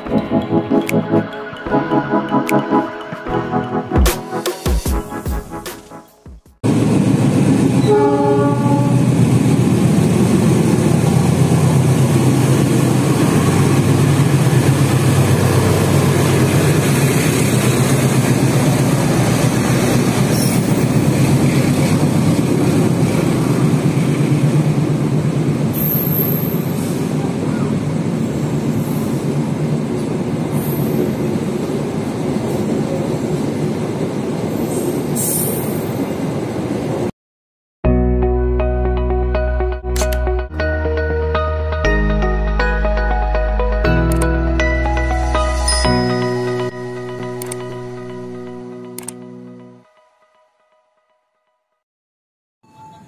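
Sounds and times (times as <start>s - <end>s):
train wheels rumbling on rails: 6.6s - 37.1s
high wheel squeals: 20.3s - 20.9s.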